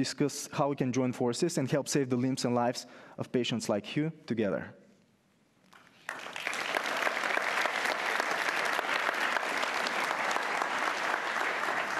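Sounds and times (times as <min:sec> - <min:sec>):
audience applause: 0:06.0 - 0:11.9.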